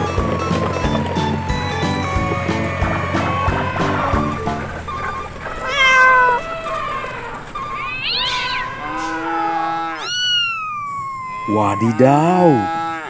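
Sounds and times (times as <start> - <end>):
cat meowing: 2.1 - 13.0.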